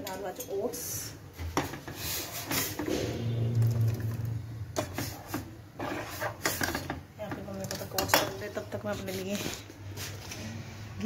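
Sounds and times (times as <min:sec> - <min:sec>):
metal spoon scraping steel pot: 0:02.5 - 0:06.9
low hum: 0:02.8 - 0:06.2.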